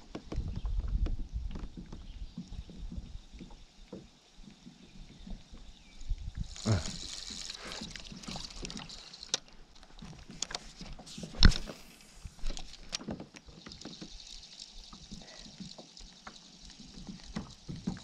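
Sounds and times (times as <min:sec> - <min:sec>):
steady high hiss: 0:05.7 - 0:09.6.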